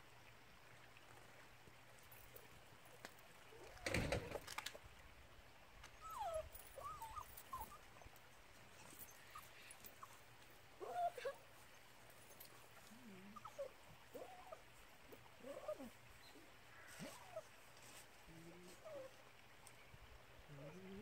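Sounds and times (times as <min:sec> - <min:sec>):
dog whimpering: 0:06.0 - 0:07.8, 0:10.8 - 0:11.4.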